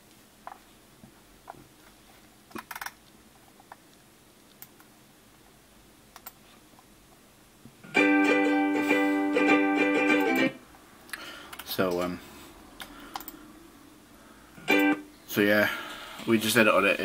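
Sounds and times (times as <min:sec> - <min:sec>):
computer mouse clicks: 0:02.5 - 0:04.9, 0:06.1 - 0:06.9, 0:12.8 - 0:13.4
plucked string music from speakers: 0:07.9 - 0:10.6, 0:14.7 - 0:15.0.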